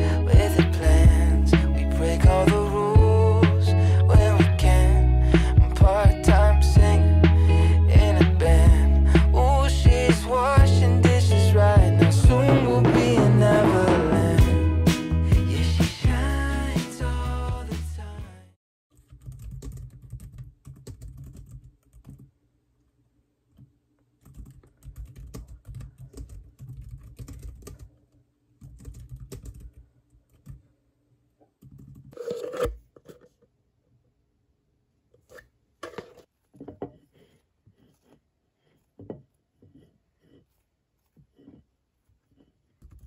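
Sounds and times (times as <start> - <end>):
fast keyboard typing: 19.0 - 22.3, 24.2 - 27.9, 28.6 - 30.6
spoon scraping spread on bread: 32.1 - 33.3, 36.7 - 42.9.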